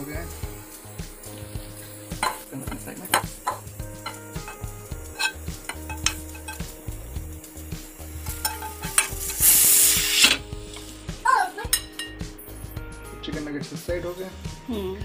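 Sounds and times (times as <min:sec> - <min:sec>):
spatula scraping frying pan: 0:01.7 - 0:06.8, 0:08.2 - 0:10.8.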